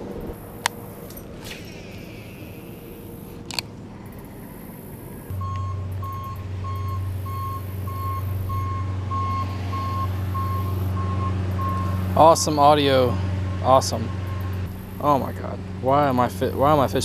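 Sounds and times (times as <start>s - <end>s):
construction vehicle engine: 0.0s - 17.0s
reverse alarm beeping: 5.3s - 12.3s, 13.5s - 14.6s.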